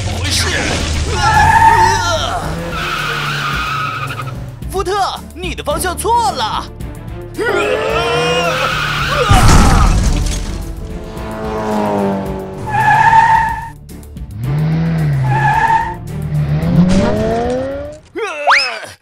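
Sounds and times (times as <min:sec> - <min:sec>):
background music: 0:00.0 - 0:18.4
tyres screeching: 0:00.1 - 0:04.6, 0:07.4 - 0:12.0, 0:12.6 - 0:13.8, 0:14.6 - 0:18.9
loud cartoon crash: 0:09.1 - 0:10.8
horn-like tones: 0:10.6 - 0:13.8.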